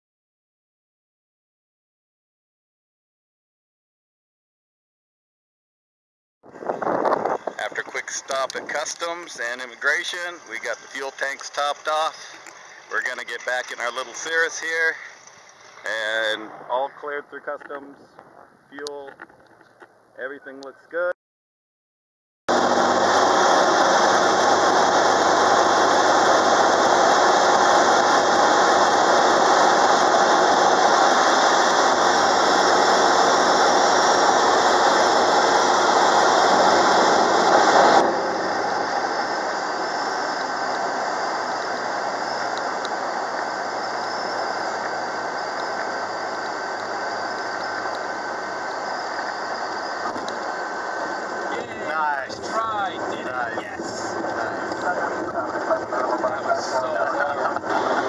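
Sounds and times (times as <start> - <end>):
plane engine and propeller: 6.5 - 20.7, 22.5 - 58.0
rushing air: 22.5 - 57.0.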